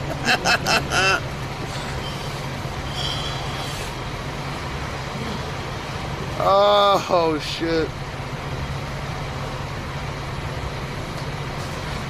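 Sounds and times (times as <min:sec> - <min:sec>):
man laughing: 0:00.0 - 0:01.8
vehicle engine idling: 0:00.0 - 0:12.0.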